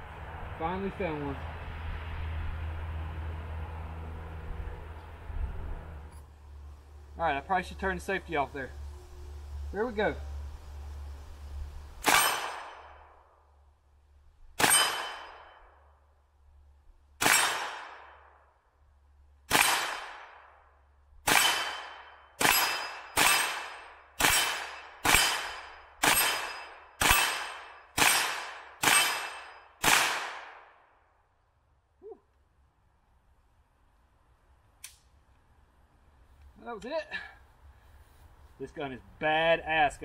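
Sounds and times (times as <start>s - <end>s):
gunshots: 12.0s - 13.0s, 14.6s - 15.6s, 17.2s - 18.3s, 19.5s - 20.5s, 21.2s - 30.8s.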